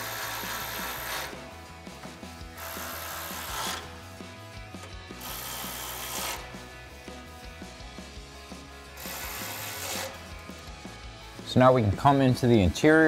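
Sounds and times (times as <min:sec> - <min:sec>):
electric ratchet driving bolts: 0:00.0 - 0:01.6, 0:02.5 - 0:04.1, 0:04.7 - 0:06.7, 0:08.9 - 0:11.0.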